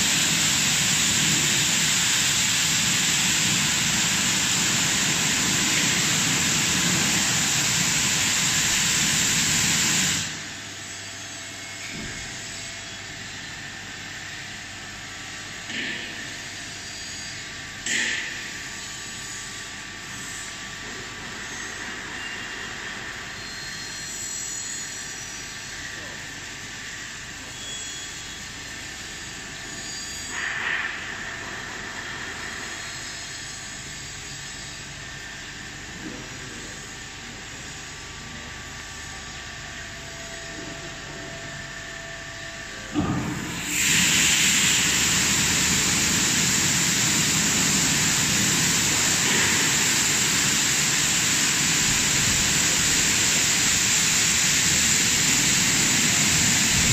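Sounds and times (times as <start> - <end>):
high-pressure water spray hiss: 0.0 - 10.6, 43.0 - 56.9.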